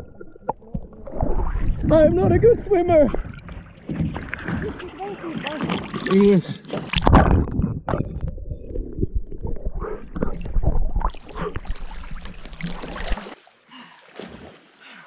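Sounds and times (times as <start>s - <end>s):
heavy low rumble: 0.0s - 3.2s
water splashing and sloshing: 0.0s - 15.0s.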